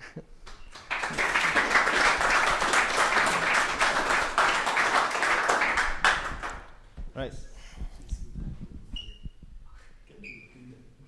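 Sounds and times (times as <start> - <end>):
audience applauding: 0.4 - 6.8.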